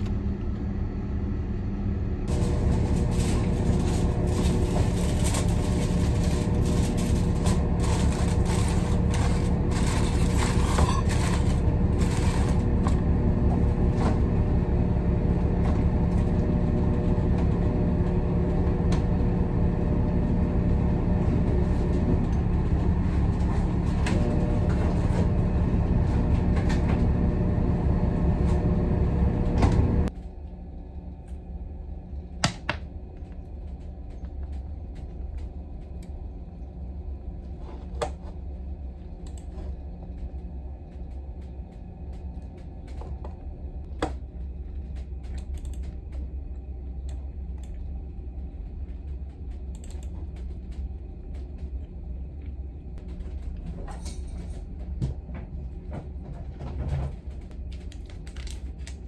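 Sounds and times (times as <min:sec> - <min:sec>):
ship engine and ventilation drone: 0:00.0 - 0:59.0
rustling and clicking handling noises: 0:02.3 - 0:13.1, 0:53.0 - 0:59.0.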